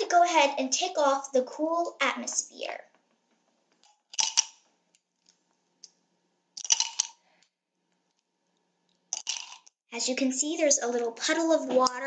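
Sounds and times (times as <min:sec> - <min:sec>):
spoon scraping ice cubes: 0:09.2 - 0:09.7.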